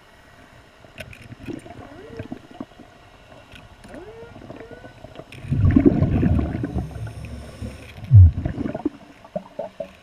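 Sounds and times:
underwater exhaled bubbles gurgling: 0:01.4 - 0:03.0, 0:03.8 - 0:10.0.

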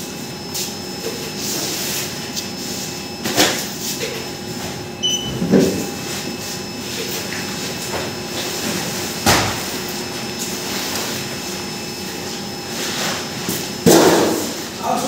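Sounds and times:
short high beep: 0:05.0 - 0:05.5.

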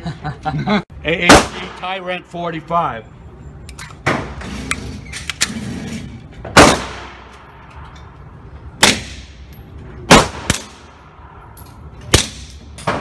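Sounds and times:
suppressed pistol shots echoing: 0:06.6 - 0:07.3.

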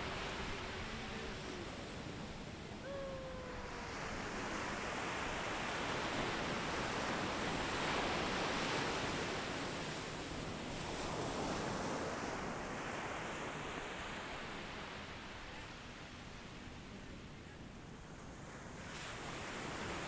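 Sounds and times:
ocean surf breaking: 0:00.0 - 0:09.5.

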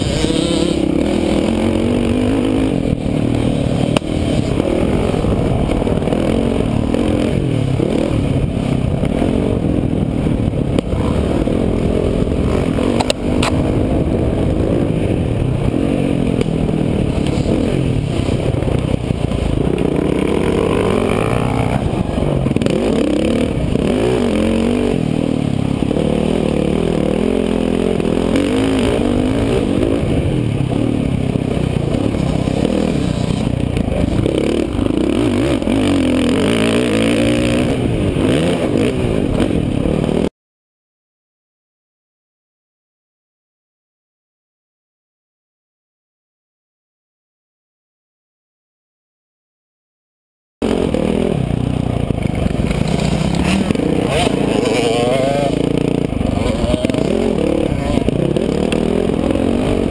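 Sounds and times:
dirt bike engine revving: 0:00.0 - 0:40.3, 0:50.6 - 0:59.9.

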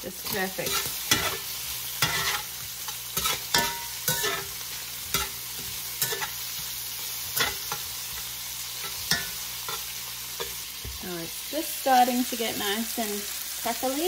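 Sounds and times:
food sizzling in a skillet: 0:00.0 - 0:14.0
metal utensil scraping a pan: 0:00.2 - 0:10.8.

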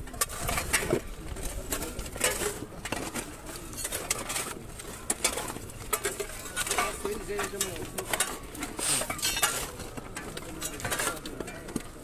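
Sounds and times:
shovels scraping in soil and stones: 0:00.2 - 0:12.0
murmur of men's voices: 0:06.3 - 0:12.0.

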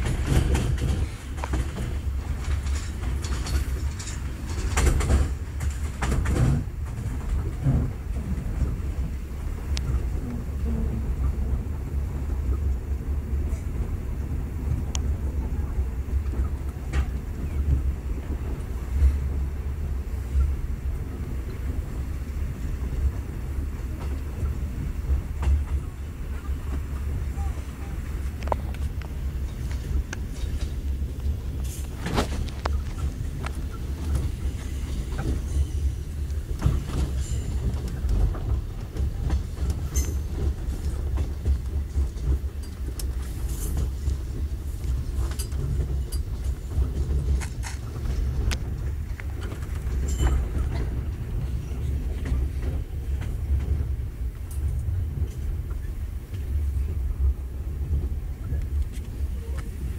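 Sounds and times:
wheels and coach body knocking: 0:00.0 - 0:08.9
train carriage low rumble: 0:00.0 - 0:59.9.

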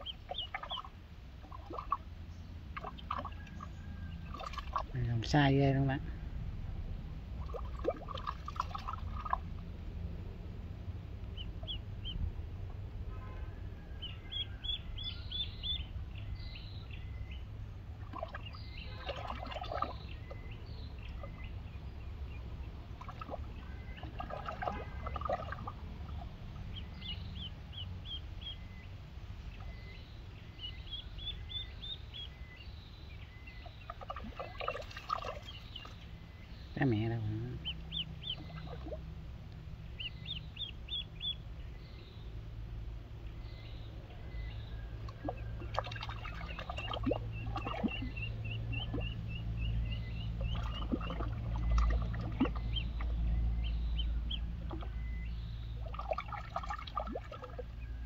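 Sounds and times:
water splashing from paddling: 0:00.0 - 0:02.1, 0:02.7 - 0:05.0, 0:07.4 - 0:09.7, 0:17.9 - 0:21.6, 0:22.9 - 0:27.1, 0:33.6 - 0:36.2, 0:45.0 - 0:58.0
duckling peeping: 0:00.0 - 0:04.9, 0:11.2 - 0:12.9, 0:13.9 - 0:28.8, 0:29.5 - 0:39.2, 0:39.8 - 0:42.3, 0:43.9 - 0:56.4.

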